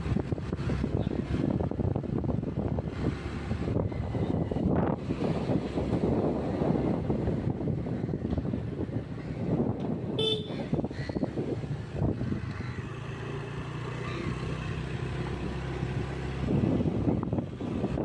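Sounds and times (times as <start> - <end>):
wind buffeting microphone: 0.0 - 13.2, 14.2 - 18.0
short horn toot: 10.2 - 10.6.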